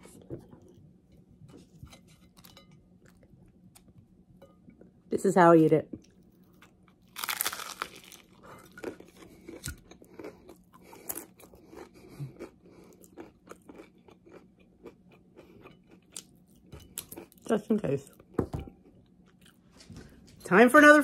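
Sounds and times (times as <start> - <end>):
chewing with small crunches: 6.0 - 19.8
person biting with loud crunch: 7.2 - 9.0.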